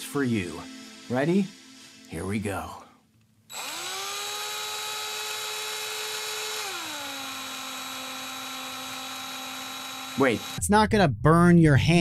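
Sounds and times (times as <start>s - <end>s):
cordless drill motor whining: 3.5s - 10.6s.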